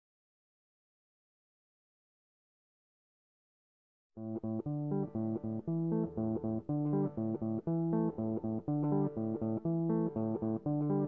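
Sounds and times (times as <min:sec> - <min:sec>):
bass guitar: 0:04.2 - 0:11.0
plucked guitar riff: 0:04.2 - 0:11.0.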